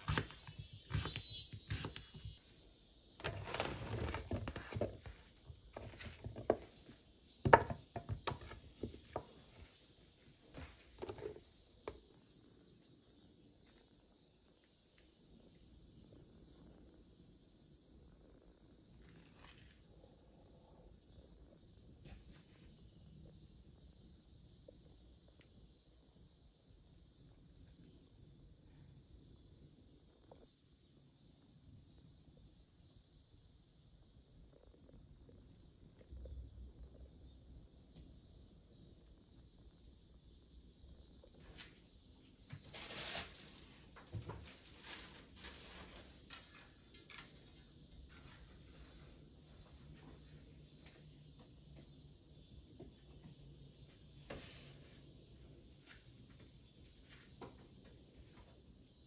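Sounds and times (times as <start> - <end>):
crickets chirring: 0.0 - 59.0
sharp knocks and clatters: 7.4 - 9.4.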